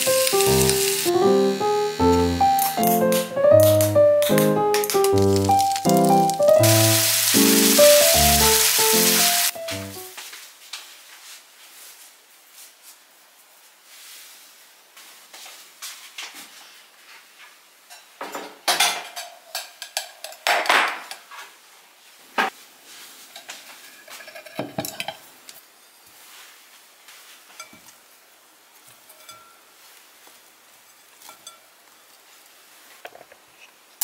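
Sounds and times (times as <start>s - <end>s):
dishes and utensils clinking: 17.9s - 21.2s, 23.3s - 25.3s, 29.0s - 29.6s, 31.2s - 31.7s
dishes clattering: 17.9s - 21.2s, 23.4s - 25.2s.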